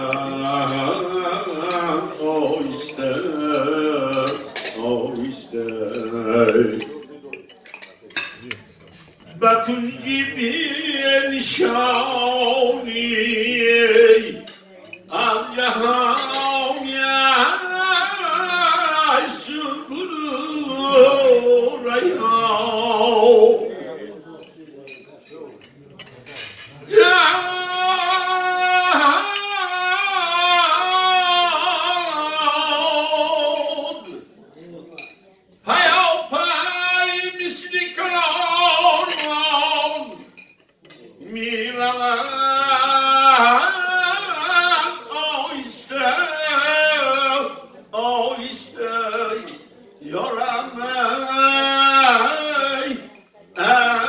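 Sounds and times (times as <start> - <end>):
man chanting into a microphone: 0.0 - 7.2, 9.3 - 14.5, 15.1 - 24.0, 26.7 - 34.3, 35.6 - 40.4, 41.2 - 54.0
man singing: 0.0 - 7.4, 8.4 - 24.1, 26.4 - 54.0
cutlery clinks: 0.1 - 20.2, 24.4 - 34.3, 35.0 - 41.6.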